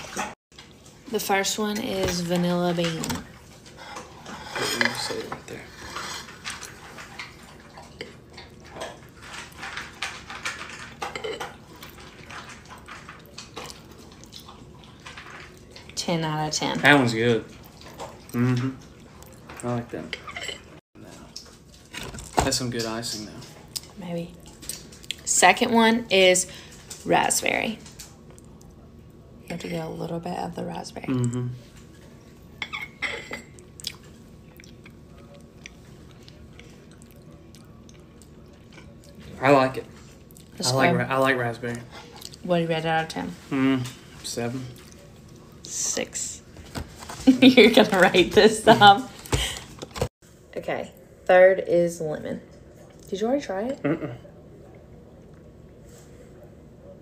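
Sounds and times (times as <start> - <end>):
person chewing: 6.2 - 16.0, 32.7 - 39.2.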